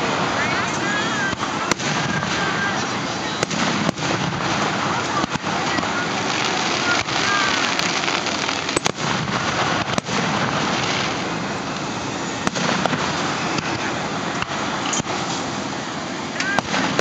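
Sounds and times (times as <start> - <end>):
continuous noisy background: 0.0 - 17.0
fireworks shells bursting: 0.0 - 17.0.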